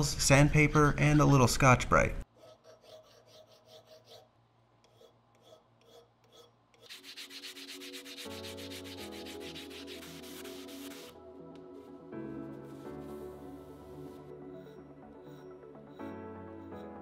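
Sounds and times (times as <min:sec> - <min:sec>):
file scraping metal: 0:02.3 - 0:11.2, 0:12.5 - 0:17.0
abrasive pad rubbing metal: 0:04.9 - 0:17.0.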